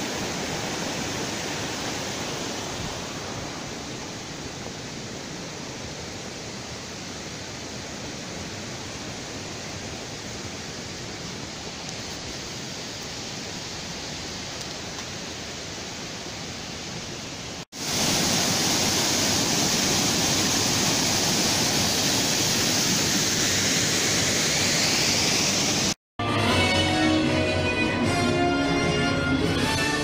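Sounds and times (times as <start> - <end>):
waterfall pouring over rock: 0.0 - 26.0
music: 26.2 - 30.0.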